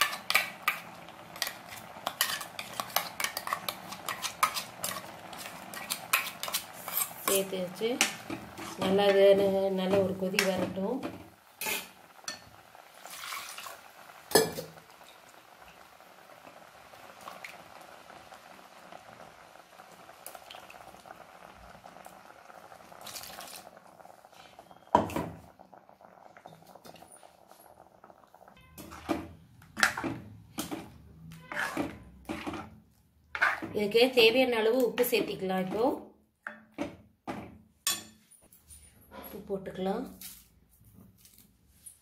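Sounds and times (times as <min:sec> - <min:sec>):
spoon clinking and scraping a pan: 0:00.0 - 0:09.2, 0:11.6 - 0:12.5, 0:28.6 - 0:33.8, 0:37.8 - 0:39.4
curry bubbling: 0:00.0 - 0:36.0.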